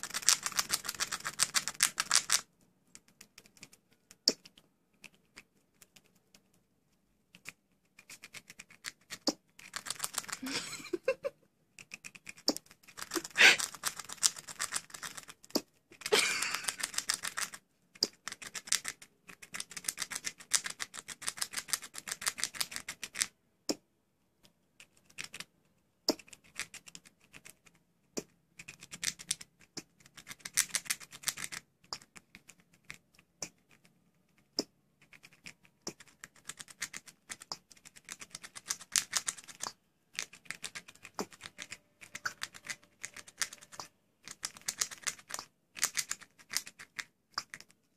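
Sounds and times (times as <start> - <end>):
squirrel chewing hard food: 0.0 - 23.4, 24.8 - 47.9
squirrel hiccup: 13.2 - 13.7.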